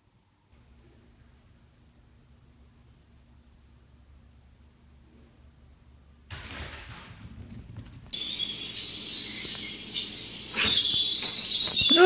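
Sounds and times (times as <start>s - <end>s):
high-pitched bird chirping: 8.2s - 12.0s.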